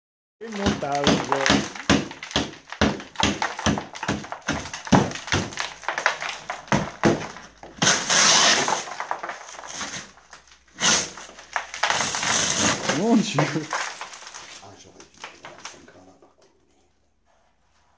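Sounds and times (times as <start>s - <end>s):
hammer knocking on plasterboard: 0.4s - 8.0s
debris crumbling and rustling: 0.4s - 16.1s
plasterboard cracking and tearing: 0.4s - 16.1s.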